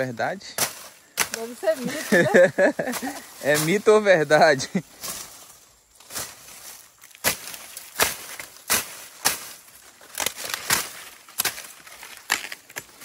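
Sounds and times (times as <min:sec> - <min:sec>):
machete chopping sugarcane: 0:00.4 - 0:01.7, 0:07.1 - 0:13.0.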